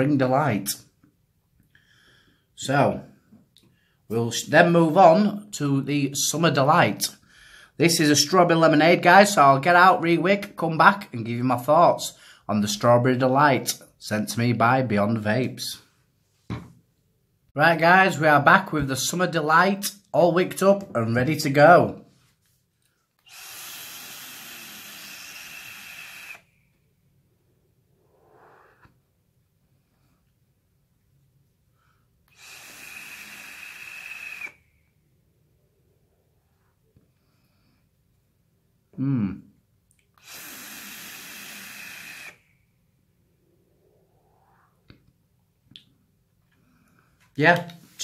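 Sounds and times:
air hissing through vaporizer coil: 23.2 - 26.5, 28.0 - 29.0, 32.3 - 34.7, 40.2 - 42.5, 43.8 - 44.8
person exhaling: 27.9 - 29.1, 31.8 - 35.0.

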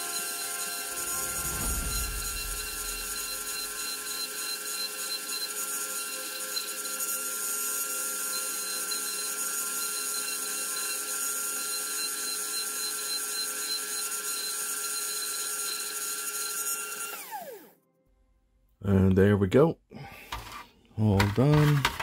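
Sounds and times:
rotary tool grinding plastic: 0.0 - 17.6.

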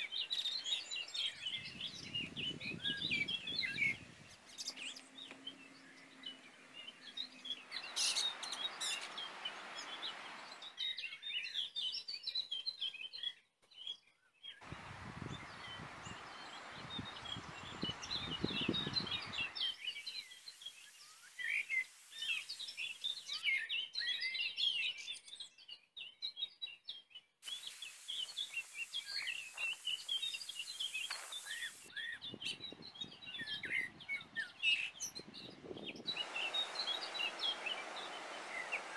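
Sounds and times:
background hiss: 0.0 - 10.7, 14.6 - 23.4, 27.4 - 32.0, 36.0 - 38.9
songbirds chirping: 0.0 - 38.9
low rumbling noise: 36.1 - 38.9.

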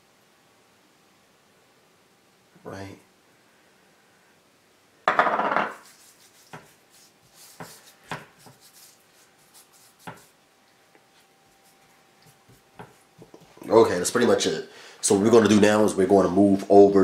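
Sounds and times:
hands patting and rubbing fish: 5.7 - 13.6.

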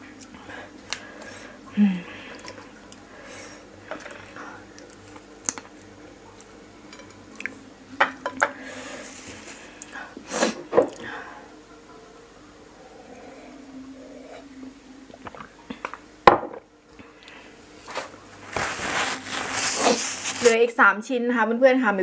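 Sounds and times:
wet eating clicks and squishes: 2.3 - 3.0, 3.9 - 6.6.

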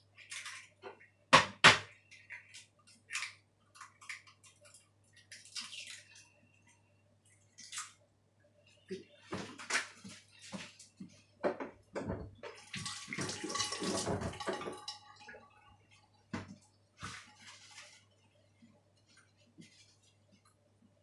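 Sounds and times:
running water splashing: 12.5 - 16.0.

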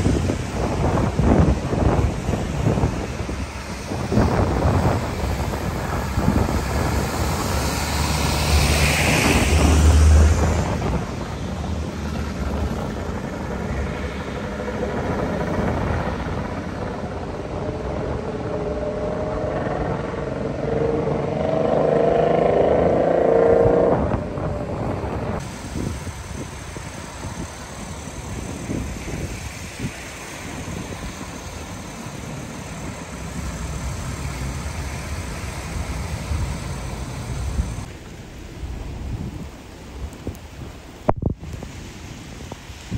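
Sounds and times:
vehicle passing close: 0.0 - 25.5
traffic engines: 0.0 - 42.9
tyres hissing on wet road: 0.0 - 42.9.

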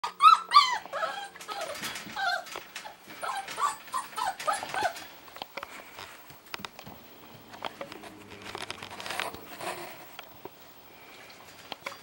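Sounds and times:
puppy yipping and whimpering: 0.0 - 5.1.

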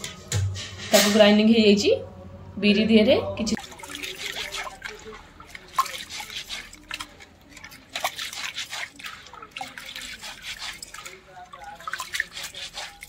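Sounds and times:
hands splashing in bowl of water: 3.6 - 13.0.

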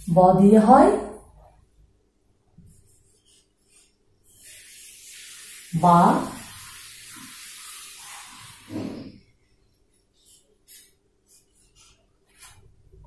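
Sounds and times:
marker writing on whiteboard: 2.6 - 4.6, 10.2 - 12.6.

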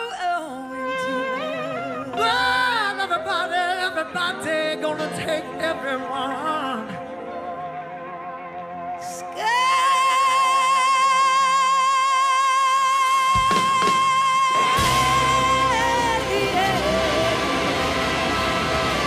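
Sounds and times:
blues-rock band playing: 13.3 - 19.0.

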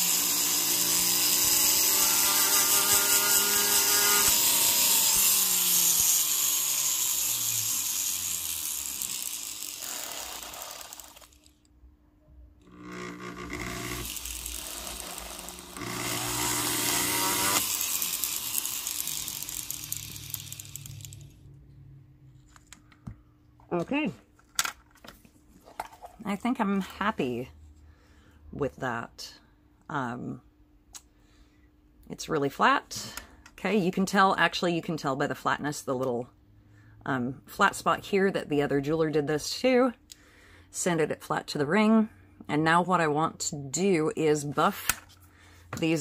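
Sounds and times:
rotary tool grinding whine: 0.0 - 11.6, 12.6 - 21.4.

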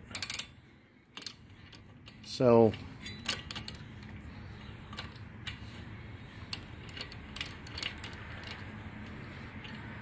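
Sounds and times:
metallic ratchet wrench clicks: 0.1 - 0.5.

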